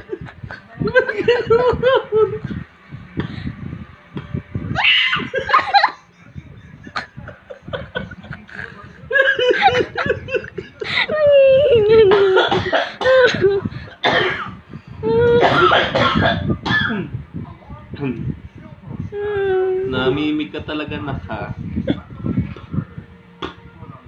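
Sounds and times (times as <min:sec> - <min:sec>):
man laughing breathily: 0:05.4 - 0:14.0.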